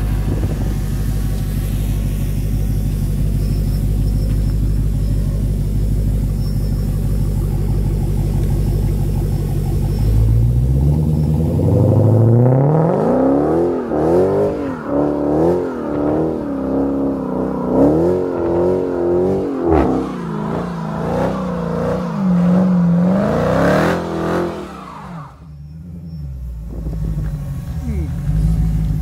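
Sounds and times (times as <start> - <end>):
car engine revving hard: 10.0 - 25.5.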